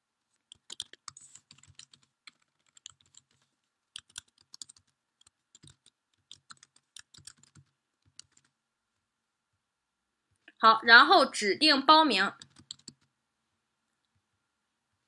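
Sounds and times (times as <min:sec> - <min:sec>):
faint typing on keyboard: 0:00.2 - 0:10.6, 0:12.3 - 0:13.2.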